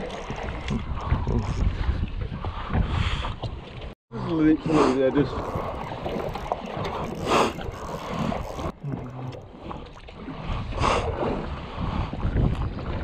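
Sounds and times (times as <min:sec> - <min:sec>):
wind buffeting microphone: 0:00.0 - 0:03.9, 0:05.1 - 0:13.0
water slapping boat hull: 0:00.0 - 0:04.0, 0:05.2 - 0:13.0.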